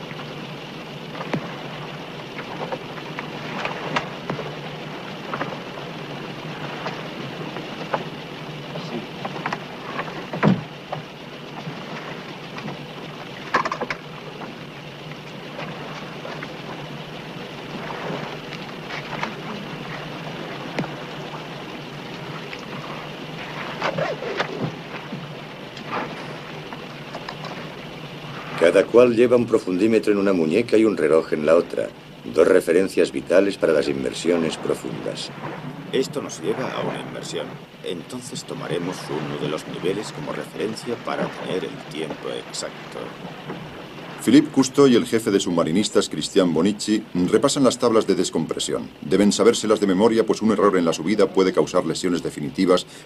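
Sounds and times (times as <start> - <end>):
sea: 0.0 - 53.0
wind: 0.0 - 53.0
diving gear knocking and clattering: 1.1 - 27.8.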